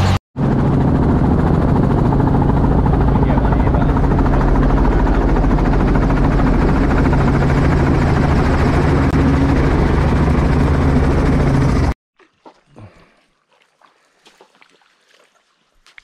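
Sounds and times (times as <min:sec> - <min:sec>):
helicopter rotor and engine drone: 0:00.0 - 0:12.0.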